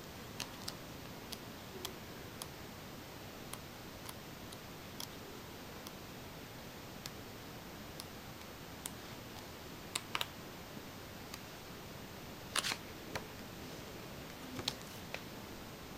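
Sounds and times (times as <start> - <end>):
steady low hiss: 0.0 - 15.9
page flap: 12.6 - 13.2
book pages turning: 12.6 - 13.3.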